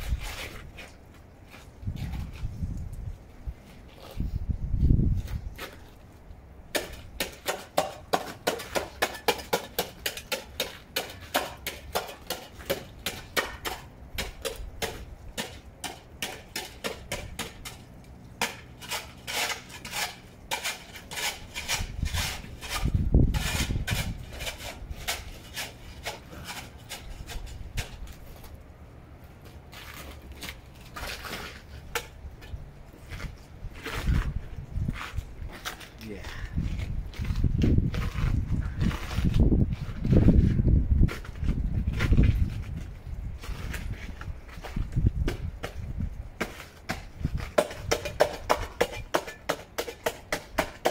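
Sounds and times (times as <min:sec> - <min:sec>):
ice scraper chipping ice: 0:18.4 - 0:27.9.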